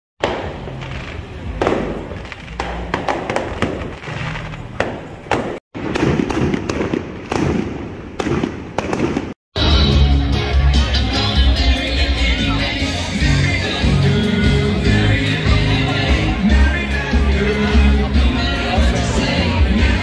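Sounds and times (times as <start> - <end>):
fireworks bangs and crackles: 0.2 - 9.4
music: 9.6 - 20.0.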